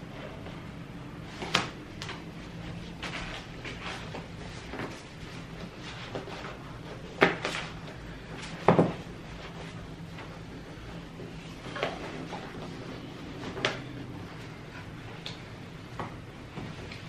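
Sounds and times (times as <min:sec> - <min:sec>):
chair knocks and clunks: 0:08.6 - 0:09.1.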